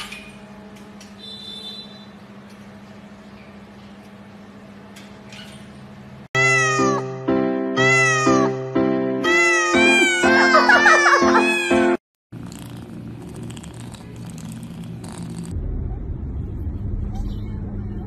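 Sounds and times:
cat meowing: 6.4s - 7.0s, 9.2s - 11.8s
low background hum: 12.4s - 18.0s.

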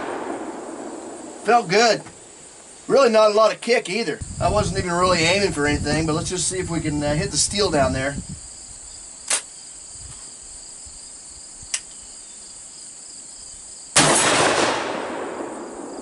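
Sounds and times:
shotgun blast: 0.0s - 1.5s, 14.0s - 15.9s
high insect buzz: 0.0s - 3.1s, 4.2s - 14.0s
gun closing clicks: 9.2s - 9.5s.

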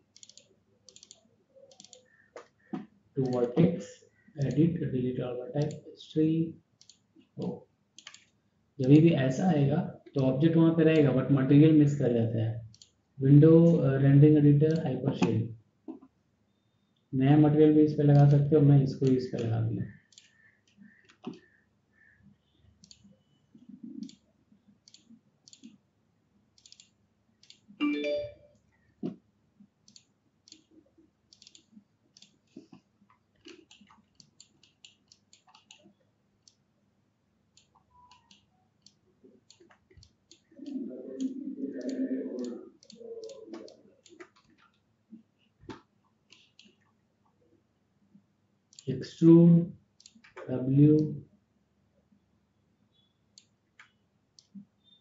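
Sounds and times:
computer mouse clicking: 0.0s - 4.7s, 5.6s - 5.8s, 6.8s - 9.0s, 12.7s - 13.0s, 14.7s - 16.1s, 18.1s - 22.2s, 22.8s - 25.8s, 26.6s - 27.8s, 29.8s - 36.7s, 37.5s - 47.4s, 48.7s - 49.0s, 50.0s - 51.1s, 53.0s - 55.0s.

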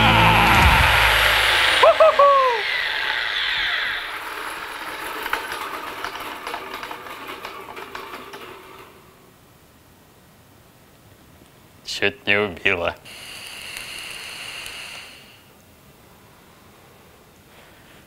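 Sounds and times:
brief falling squeal: 0.0s - 4.6s
angle grinder spinning down: 0.0s - 9.1s
rattles and clicks: 3.0s - 9.3s.

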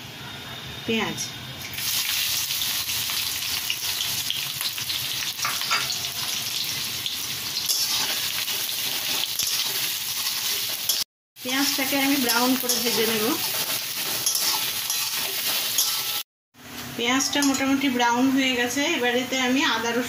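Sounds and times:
onions sizzling in hot oil: 1.6s - 16.2s
spatula stirring onions: 4.6s - 16.2s.

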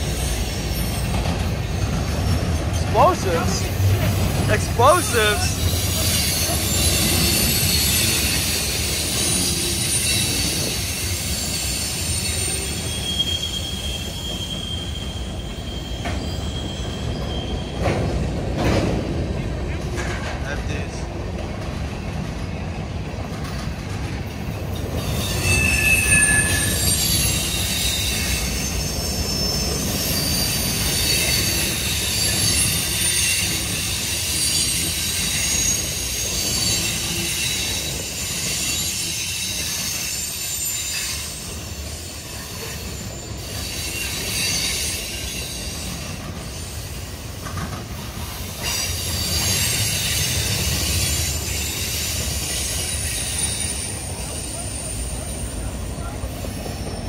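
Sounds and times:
train wheels rumbling on rail: 0.0s - 57.0s
high-pitched wheel squeal: 5.5s - 18.1s, 24.9s - 47.2s, 48.6s - 57.0s.

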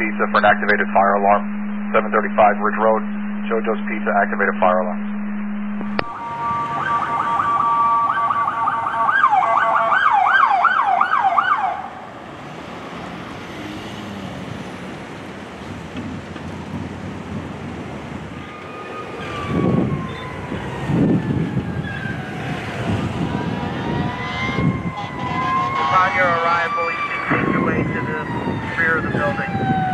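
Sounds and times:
electronic siren yelp: 0.0s - 12.1s, 18.3s - 29.9s
siren wailing: 0.0s - 12.2s, 18.2s - 29.9s
street traffic noise: 0.0s - 29.9s.

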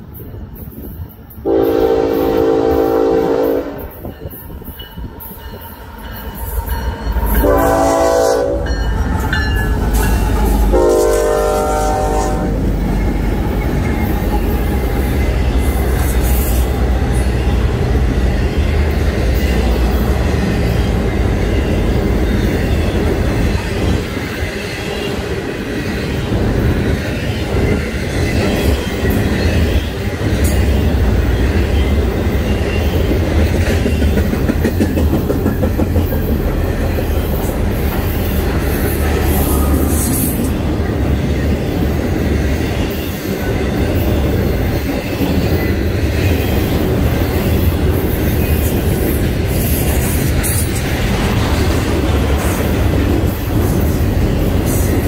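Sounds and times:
train rumbling past: 0.0s - 55.0s
wheel noise on rails: 0.0s - 55.0s
train horn blasts: 1.4s - 4.1s, 7.4s - 8.9s, 10.7s - 12.6s.

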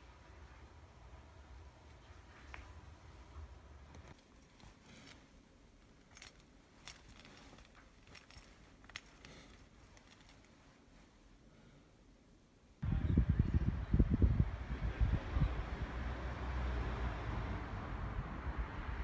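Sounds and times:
necklace clinking: 3.8s - 11.4s.

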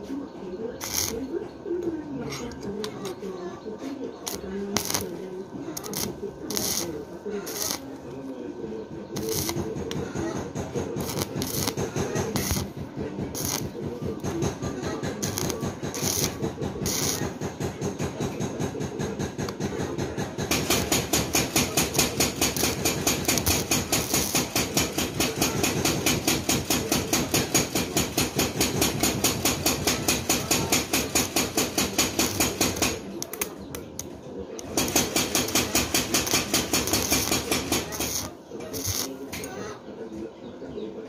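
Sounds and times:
welding arc crackling: 0.8s - 1.2s, 4.2s - 5.2s, 5.8s - 8.0s, 9.2s - 10.0s, 11.0s - 17.6s, 20.4s - 33.4s, 34.6s - 39.5s.

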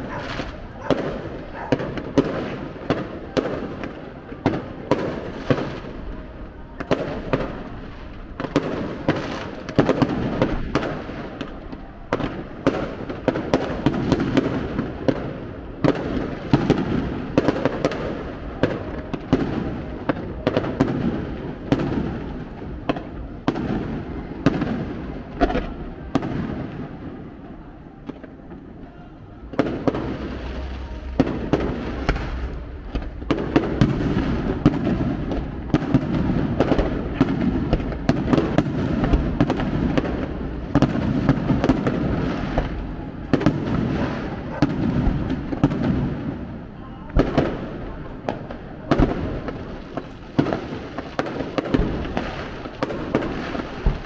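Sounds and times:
fireworks bursting: 0.0s - 54.0s
continuous rumble: 27.2s - 50.3s.

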